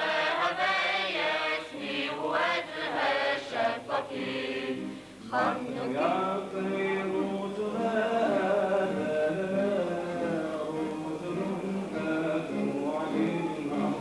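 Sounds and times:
choir singing: 0:00.0 - 0:14.0.

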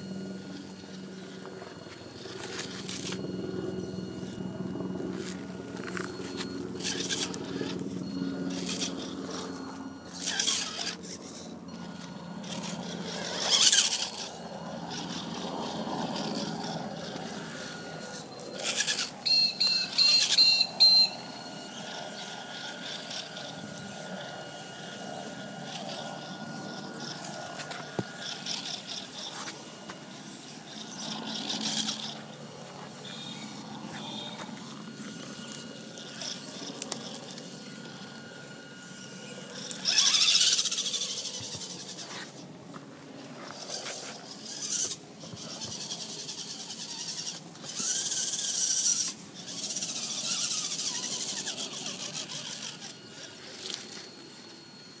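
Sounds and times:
toy car motor humming: 0:00.0 - 0:55.0
tyres scraping and crunching: 0:00.6 - 0:03.3, 0:04.2 - 0:07.8, 0:14.9 - 0:19.2, 0:39.3 - 0:54.6
high chirps: 0:18.6 - 0:21.8.

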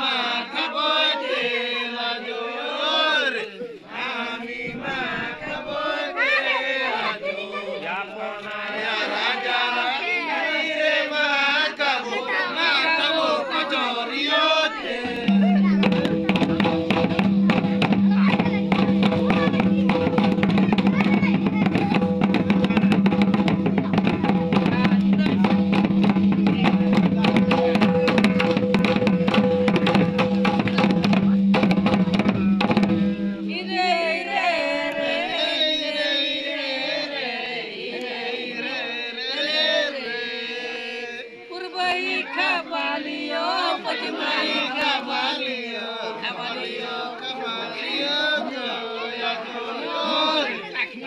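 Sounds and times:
men chanting a wavering melody: 0:00.0 - 0:51.0
fast drumming on hand drums: 0:15.0 - 0:33.7
kettle drum beaten with stick: 0:15.0 - 0:33.9.

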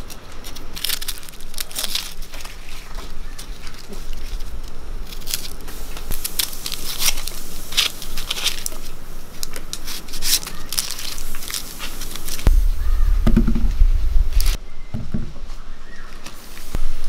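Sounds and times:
onion skins crackling and tearing: 0:00.0 - 0:13.6.

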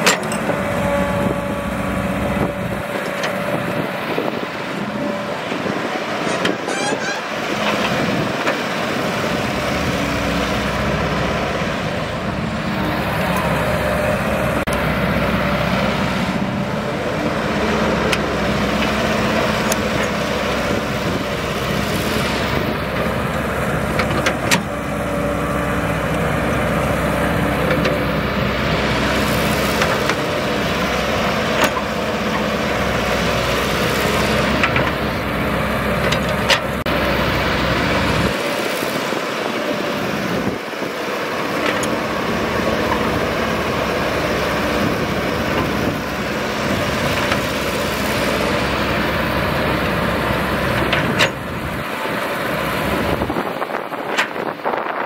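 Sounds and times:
excavator bucket clanking: 0:00.0 - 0:01.2, 0:05.5 - 0:08.6, 0:50.6 - 0:51.8
excavator diesel engine running: 0:00.0 - 0:55.0.

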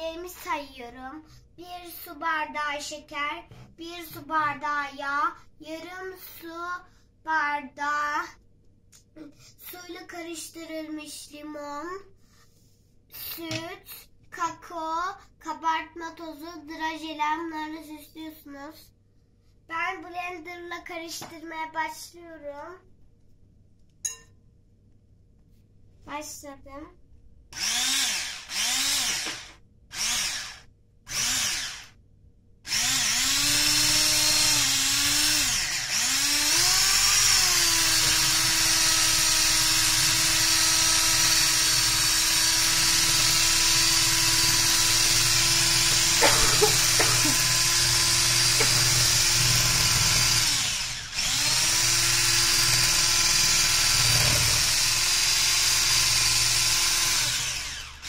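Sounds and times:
electric hand mixer whining: 0:27.6 - 0:31.9, 0:32.7 - 0:58.0.

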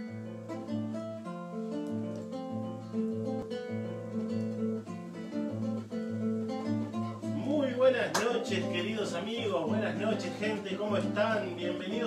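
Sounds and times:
acoustic guitar music: 0:00.0 - 0:12.0.

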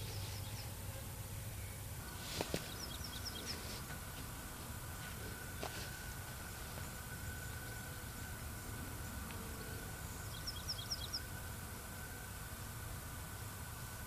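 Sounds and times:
bird chirping: 0:00.0 - 0:00.8, 0:02.6 - 0:03.9, 0:05.2 - 0:12.4
low outdoor rumble: 0:00.0 - 0:14.0.

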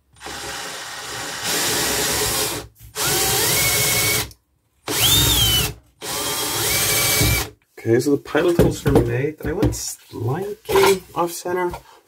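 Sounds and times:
power drill drilling into metal: 0:00.2 - 0:04.3, 0:04.9 - 0:07.5.

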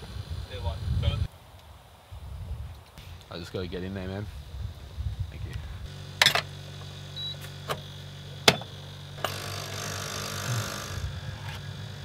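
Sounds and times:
rustle: 0:01.3 - 0:08.2
steady low hum: 0:02.1 - 0:12.0.

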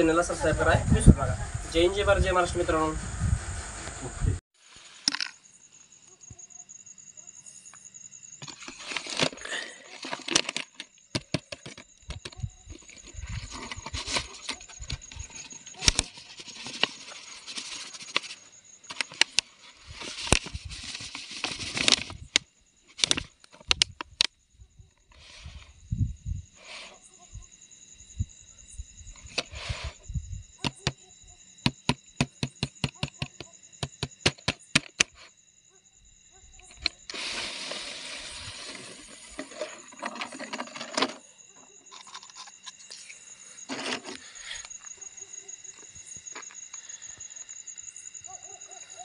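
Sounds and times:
rustling of dry grass and leaves: 0:02.9 - 0:05.4, 0:12.6 - 0:23.6, 0:36.8 - 0:41.1
insect trilling: 0:04.9 - 0:49.0
knocks and clicks on plastic jar: 0:11.1 - 0:12.3, 0:31.6 - 0:35.1.

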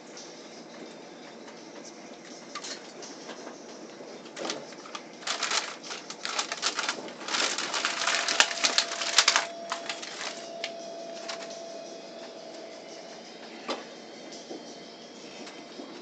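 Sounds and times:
paper bag crinkling: 0:04.4 - 0:11.6.

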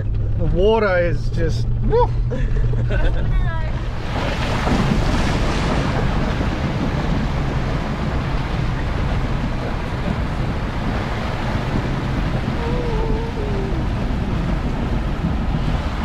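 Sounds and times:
low engine hum: 0:00.0 - 0:16.0
water splashing around wheels: 0:00.0 - 0:16.0
wind buffeting microphone: 0:00.0 - 0:16.0.

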